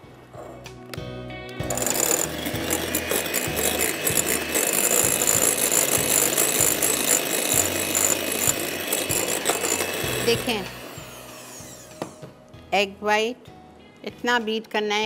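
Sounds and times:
electric hand mixer whipping: 1.6 - 12.3.

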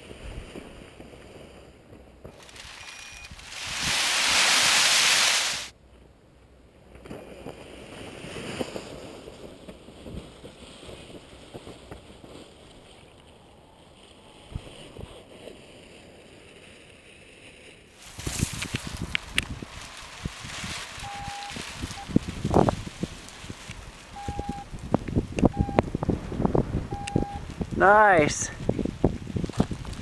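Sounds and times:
soft rustles: 2.3 - 5.7, 14.0 - 25.0
wind buffeting microphone: 18.0 - 30.0.

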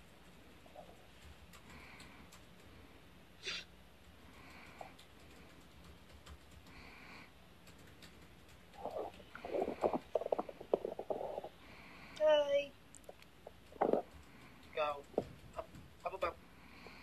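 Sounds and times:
puppies snuffling: 4.2 - 12.2, 13.0 - 17.0.

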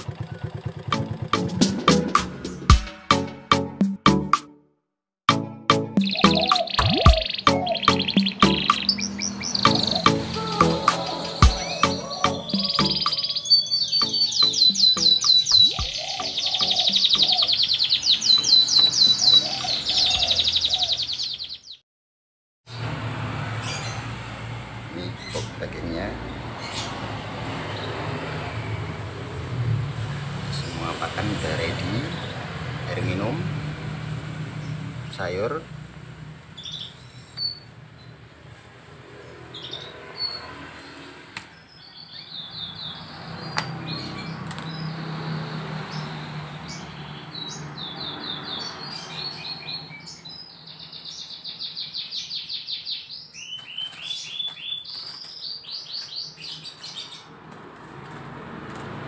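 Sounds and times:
canary singing trills: 6.0 - 21.8, 36.6 - 38.2, 41.6 - 57.3.

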